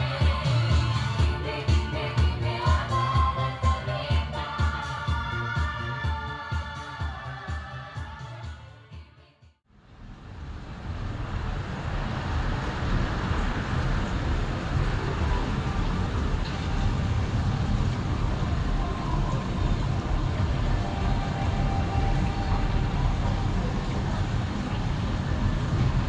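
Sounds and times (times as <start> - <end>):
outdoor rumbling noise: 9.7 - 26.0.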